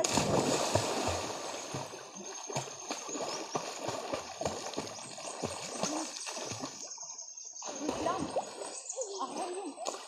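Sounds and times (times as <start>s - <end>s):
swimmer splashing: 0.0s - 6.8s
shallow water trickling: 0.1s - 10.0s.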